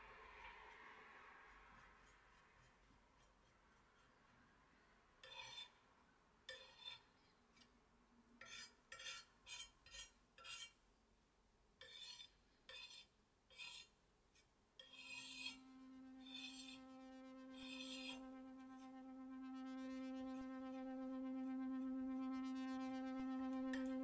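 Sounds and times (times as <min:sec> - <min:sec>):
palette knife scraping on tile: 0:01.8 - 0:04.4, 0:05.2 - 0:05.8, 0:06.5 - 0:07.7, 0:08.4 - 0:10.8, 0:11.8 - 0:18.9
steady musical tone: 0:15.3 - 0:24.0.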